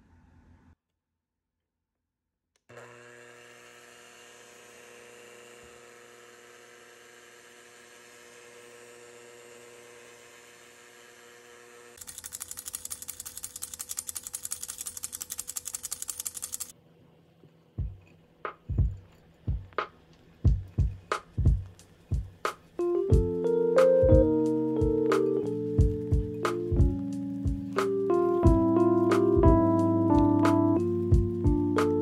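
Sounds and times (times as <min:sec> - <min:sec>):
electric mixer motor hum: 0:02.7 - 0:12.9.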